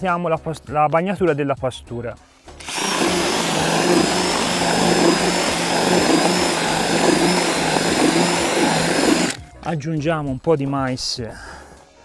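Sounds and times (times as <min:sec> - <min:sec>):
drill mixer humming with whine: 0:02.6 - 0:09.4.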